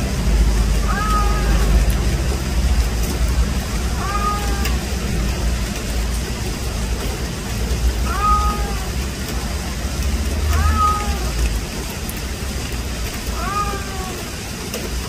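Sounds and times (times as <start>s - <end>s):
rain falling: 0.0s - 15.0s
cat meowing: 0.8s - 2.0s, 3.7s - 5.0s, 8.0s - 8.9s, 10.5s - 11.4s, 13.3s - 14.2s.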